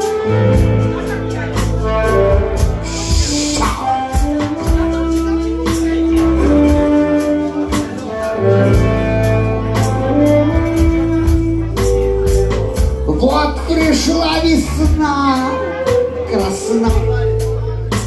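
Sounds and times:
live band playing: 0:00.0 - 0:18.0
harmonica: 0:01.6 - 0:05.5
man singing: 0:13.1 - 0:18.0.

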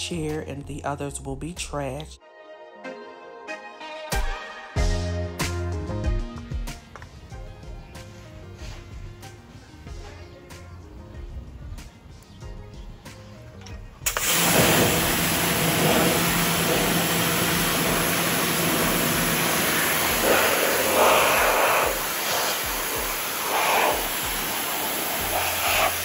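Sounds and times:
pressure washer spraying: 0:14.1 - 0:26.0.

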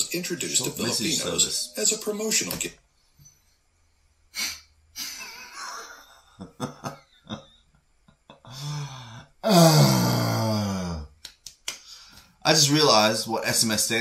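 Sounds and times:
man laughing: 0:05.0 - 0:07.6.

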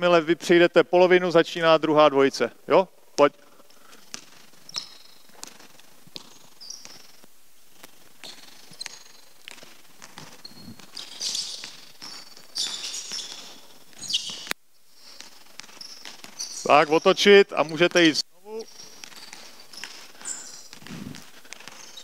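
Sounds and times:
sneakers squealing on floor: 0:03.3 - 0:22.0
basketball dribbling on hardwood: 0:03.9 - 0:16.6.

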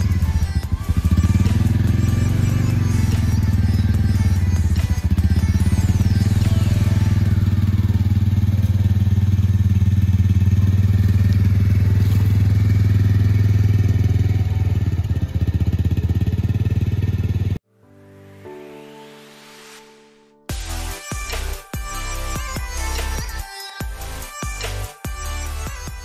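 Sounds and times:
utility vehicle engine running: 0:00.0 - 0:17.6.

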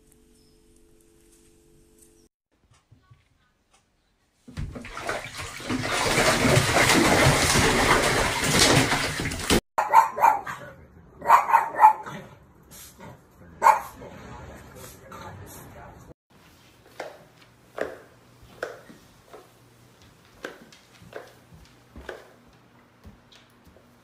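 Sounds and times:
bathwater splashing heavily: 0:04.5 - 0:09.6
dog barking: 0:09.8 - 0:12.4, 0:13.6 - 0:14.4.

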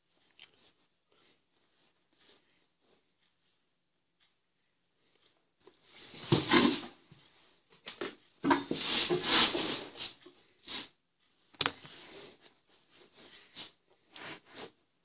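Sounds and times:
handling noise near microphone: 0:05.8 - 0:10.8.

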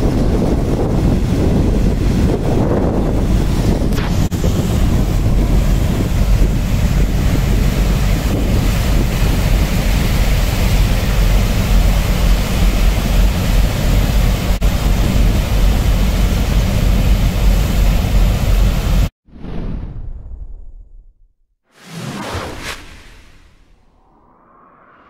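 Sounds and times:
wind buffeting microphone: 0:00.0 - 0:17.0
churning water: 0:00.0 - 0:19.1.

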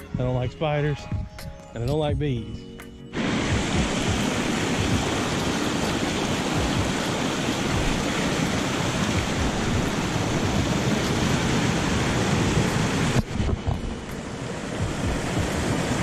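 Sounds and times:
waterfall rushing: 0:03.2 - 0:16.0.

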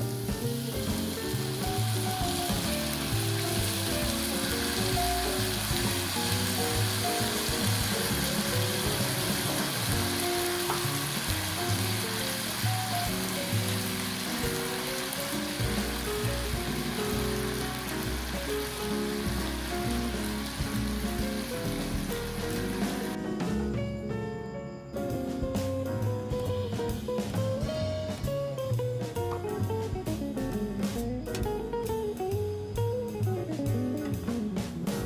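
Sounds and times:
food sizzling in frying pan: 0:00.0 - 0:23.2
background music with bass line: 0:00.0 - 0:24.3, 0:25.0 - 0:35.0.

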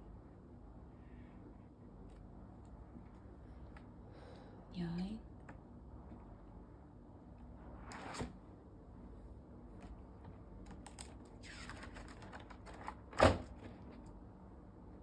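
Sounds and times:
page flapping down: 0:10.7 - 0:13.5.

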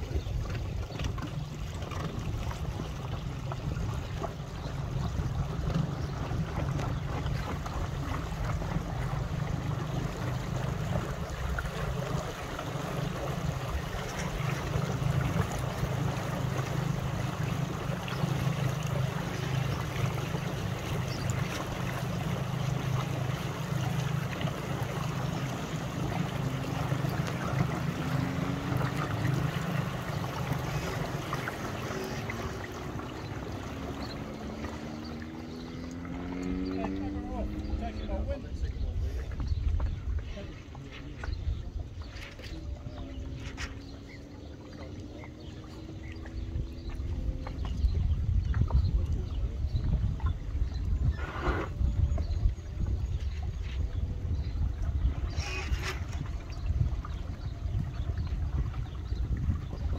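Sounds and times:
small waves lapping: 0:00.0 - 0:59.9
wind rumble on microphone: 0:00.0 - 0:59.9.

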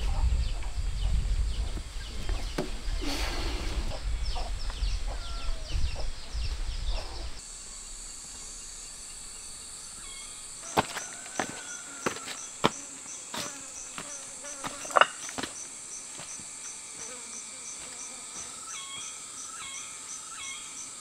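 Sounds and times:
high insect drone: 0:00.0 - 0:21.0
small birds chirping: 0:00.0 - 0:21.0
footsteps on rock: 0:10.6 - 0:17.2, 0:17.8 - 0:19.1.

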